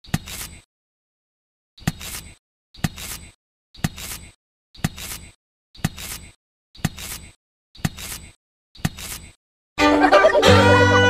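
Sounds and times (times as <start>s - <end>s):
brief rustle: 6.0s - 9.4s.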